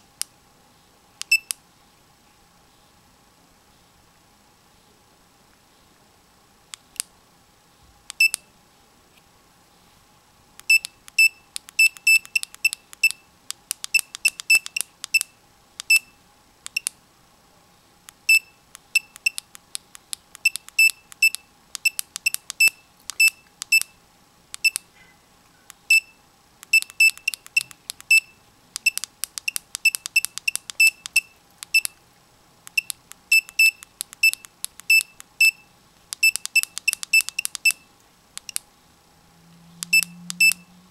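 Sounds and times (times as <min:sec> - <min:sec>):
short high key beeps: 0:10.7 - 0:13.2, 0:13.9 - 0:15.3, 0:18.3 - 0:19.4, 0:20.4 - 0:23.9, 0:25.9 - 0:32.0, 0:32.7 - 0:38.6, 0:39.8 - 0:40.6.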